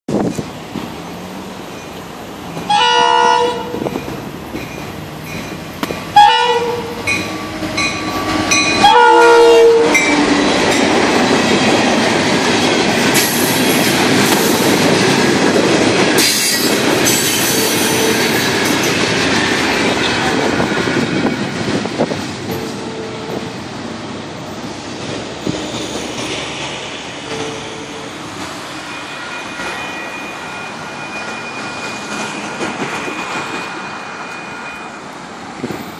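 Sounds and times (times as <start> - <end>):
train wheels clattering on rail: 0.1 - 35.9
locomotive horn blasts: 2.7 - 3.9, 6.1 - 10.2, 17.4 - 18.4, 22.6 - 23.5.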